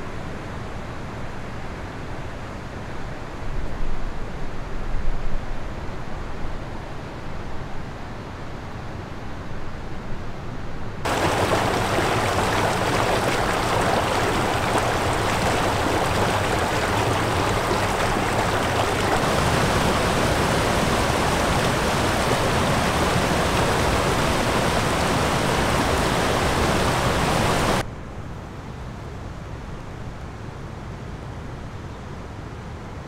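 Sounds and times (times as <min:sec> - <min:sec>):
creek water rushing: 0:11.1 - 0:27.8.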